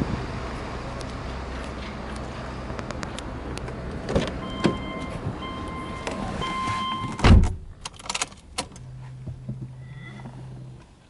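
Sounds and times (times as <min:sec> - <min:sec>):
car door shutting: 0:04.0 - 0:05.4, 0:06.0 - 0:07.8
car warning buzzer beeping: 0:04.4 - 0:07.2.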